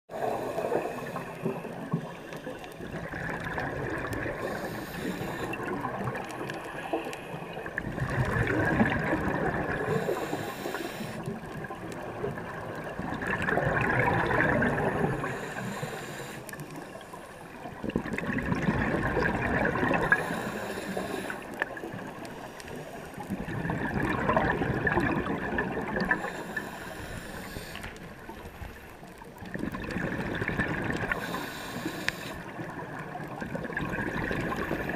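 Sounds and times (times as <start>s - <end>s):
underwater regulator breathing bubbles: 2.9s - 11.5s, 17.9s - 21.8s, 22.4s - 28.2s, 29.5s - 32.6s.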